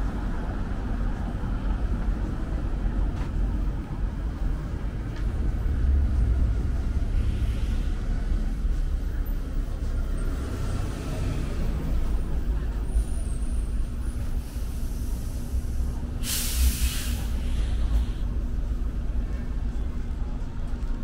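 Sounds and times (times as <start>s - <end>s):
street traffic rumble: 0.0s - 21.0s
bus air brakes hissing: 7.0s - 8.3s, 12.9s - 18.4s.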